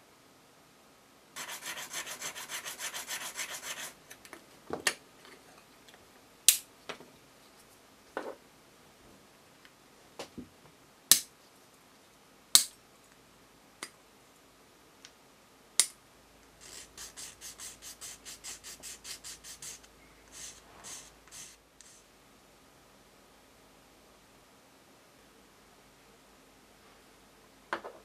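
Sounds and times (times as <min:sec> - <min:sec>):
sanding stick rasping: 0:01.4 - 0:04.0, 0:16.6 - 0:22.0.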